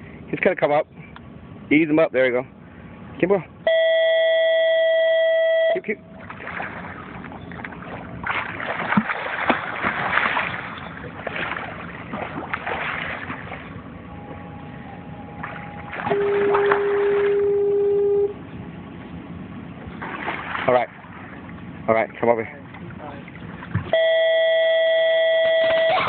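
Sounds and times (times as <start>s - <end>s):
loud steady tone: 3.6s - 6.2s, 14.0s - 18.8s, 23.9s - 26.0s
fish thrashing and splashing: 6.2s - 13.9s, 15.4s - 17.4s, 19.9s - 21.7s.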